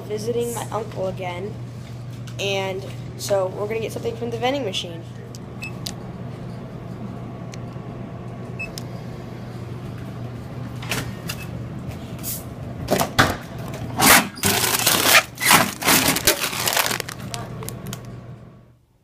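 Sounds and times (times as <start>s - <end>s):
vending machine hum: 0.0s - 19.0s
chip bag crinkling: 14.5s - 18.1s.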